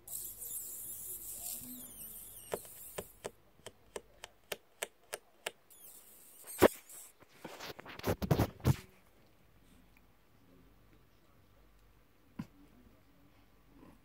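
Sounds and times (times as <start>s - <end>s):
faint high squeaks: 0.0s - 3.2s, 5.7s - 7.2s.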